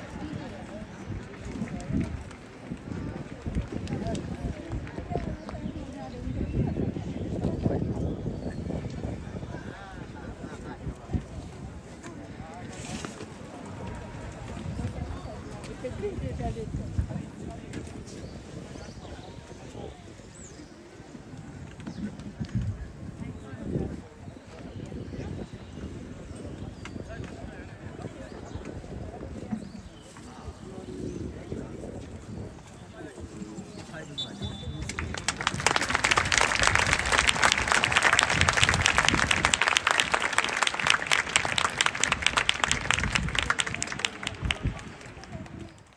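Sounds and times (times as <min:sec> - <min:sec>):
faint distant voices: 0:00.0 - 0:45.9
crowd applauding: 0:34.7 - 0:45.9.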